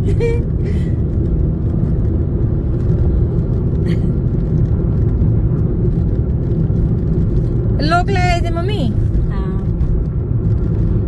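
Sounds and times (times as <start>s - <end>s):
car engine rumble from inside: 0.0s - 11.0s
tyres on the road: 0.0s - 11.0s.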